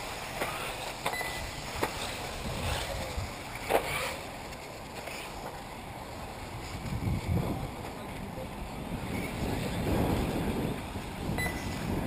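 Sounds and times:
wind rumbling on microphone: 0.0s - 4.0s, 5.7s - 12.0s.

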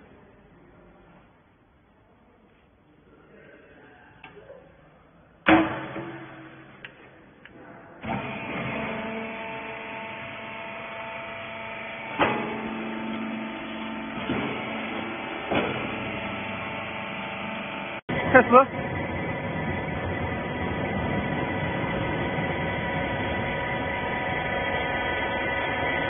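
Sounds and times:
loud metal clank: 5.5s - 6.8s, 14.2s - 16.1s
baler motor and pump humming: 8.0s - 26.0s.

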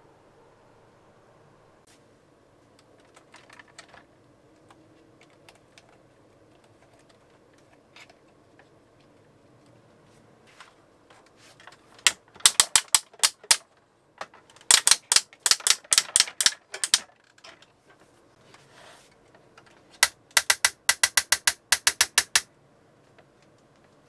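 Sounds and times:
plastic toy parts clicking: 2.8s - 9.2s, 11.6s - 17.8s, 19.6s - 22.5s.

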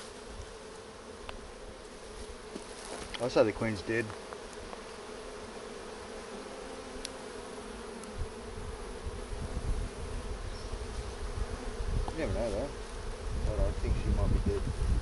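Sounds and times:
bees buzzing: 0.0s - 15.0s
low rumbling microphone noise: 13.2s - 15.0s.

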